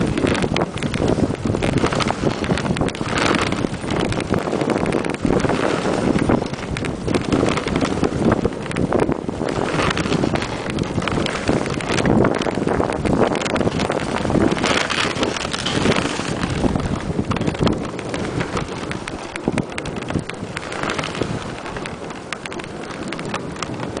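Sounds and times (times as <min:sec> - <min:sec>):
sled knocks and rattles: 0:00.0 - 0:24.0
sled rushing over snow: 0:00.0 - 0:24.0
wind buffeting microphone: 0:00.0 - 0:24.0.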